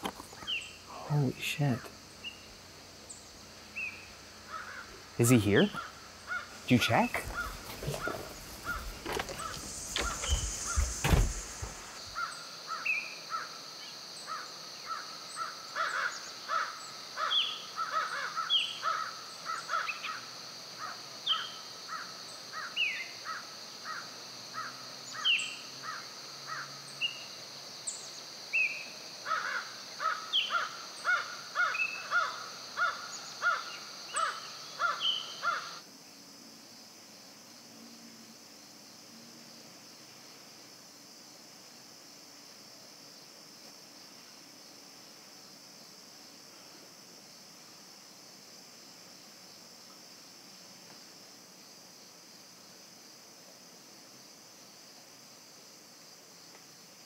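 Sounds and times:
steady high hiss: 0:00.0 - 0:57.0
birds chirping: 0:00.1 - 0:12.4
crows cawing: 0:04.5 - 0:05.0, 0:05.7 - 0:06.6, 0:07.2 - 0:11.2, 0:12.2 - 0:13.6, 0:14.3 - 0:21.0, 0:21.9 - 0:24.0, 0:25.8 - 0:26.7, 0:29.2 - 0:35.8
knocks and rustles: 0:07.1 - 0:12.1.

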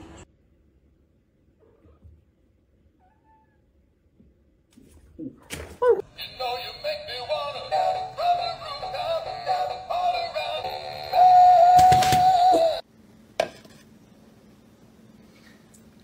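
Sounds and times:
toy singing in synthetic voice: 0:06.0 - 0:12.8.

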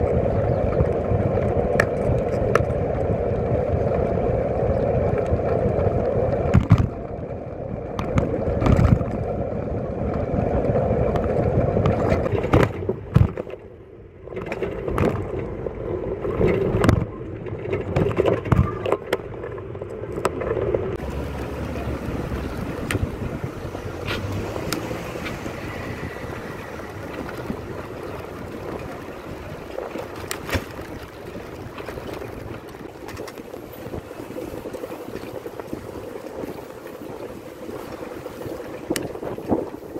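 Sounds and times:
wind rushing over microphone: 0:00.0 - 0:13.5, 0:19.8 - 0:39.9
road noise: 0:00.0 - 0:39.9
bicycle knocks and rattles: 0:06.4 - 0:07.0, 0:07.9 - 0:09.4, 0:11.1 - 0:13.6, 0:14.3 - 0:15.6, 0:16.2 - 0:19.5, 0:26.9 - 0:39.9.

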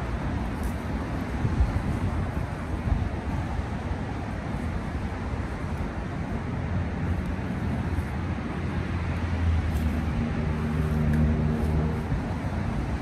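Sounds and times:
heavy vehicle engine hum: 0:00.0 - 0:13.0
road traffic rumble: 0:00.0 - 0:13.0.

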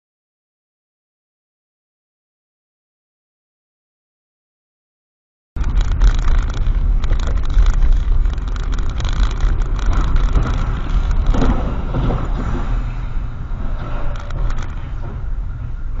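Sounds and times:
car driving on wet road: 0:05.6 - 0:16.0.

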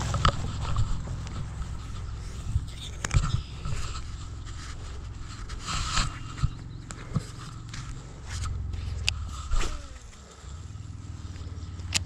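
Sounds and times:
microphone rubbing rumble: 0:00.0 - 0:12.0
brief scrape: 0:03.6 - 0:06.5.

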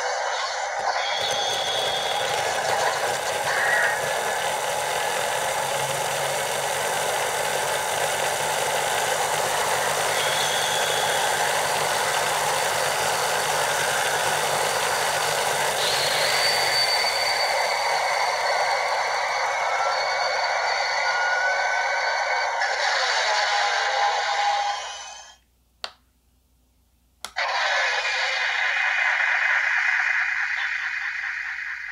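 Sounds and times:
toy belt whirring rush: 0:00.0 - 0:25.4
high electronic tone: 0:08.1 - 0:22.8.

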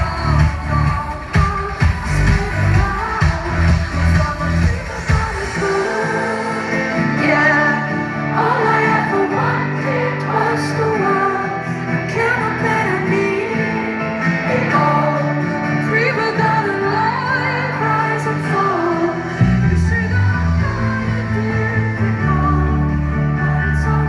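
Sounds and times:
keyboard and bass chords: 0:00.0 - 0:10.6, 0:19.0 - 0:24.0
woman singing: 0:00.0 - 0:24.0.

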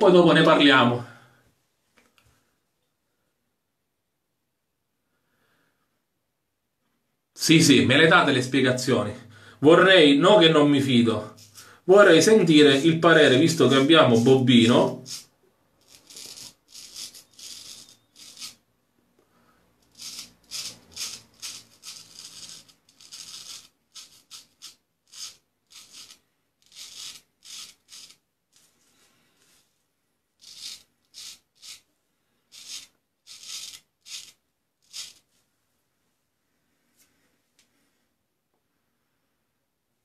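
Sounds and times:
razor scraping beard stubble: 0:14.8 - 0:18.6, 0:19.8 - 0:28.7, 0:30.4 - 0:31.9, 0:32.5 - 0:35.3.

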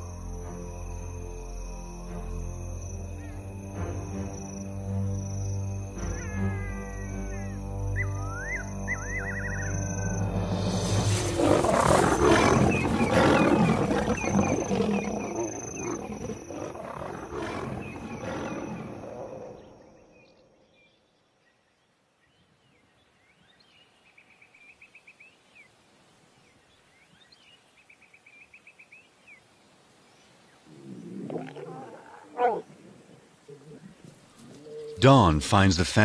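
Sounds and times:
faint trilling calls: 0:02.8 - 0:20.6, 0:30.6 - 0:35.0
lions snarling and roaring: 0:08.9 - 0:19.8, 0:30.6 - 0:35.0.

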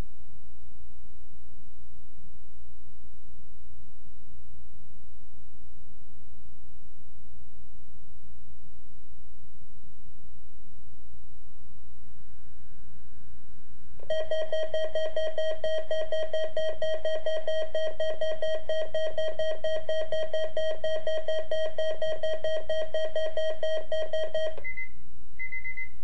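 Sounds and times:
rapidly pulsing electronic beep: 0:14.1 - 0:26.0.

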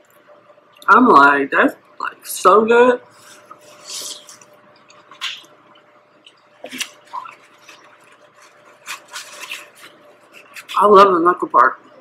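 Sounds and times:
paper napkin rustling: 0:03.1 - 0:05.5, 0:06.6 - 0:11.4
wet mouth eating sounds: 0:03.3 - 0:10.8.

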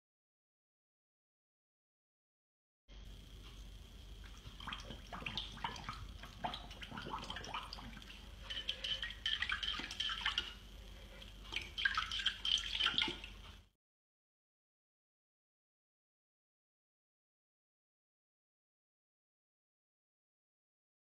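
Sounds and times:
water splashing in dog bowl: 0:04.2 - 0:10.6, 0:11.2 - 0:13.4.

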